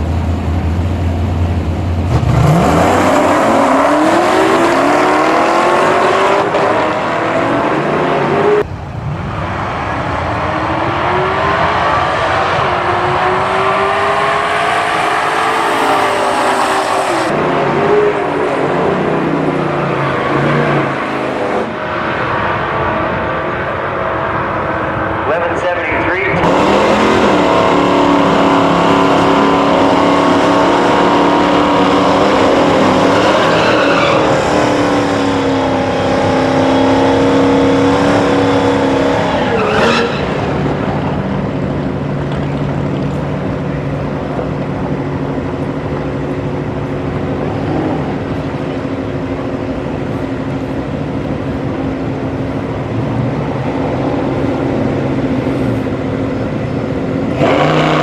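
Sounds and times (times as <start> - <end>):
car engines idling: 0.0 - 2.6, 14.7 - 57.4
car engines revving: 0.0 - 58.0.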